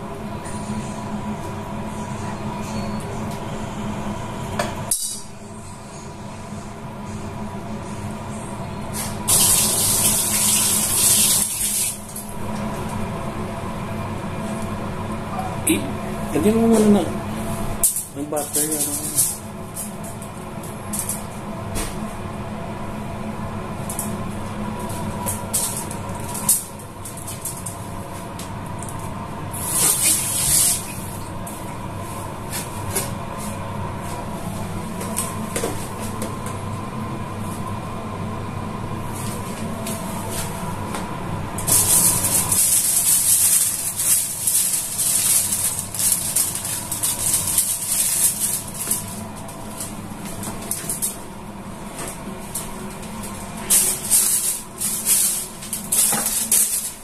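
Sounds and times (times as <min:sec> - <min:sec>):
steady low hum: 0:00.0 - 0:57.0
food sizzling in hot oil: 0:09.3 - 0:12.1.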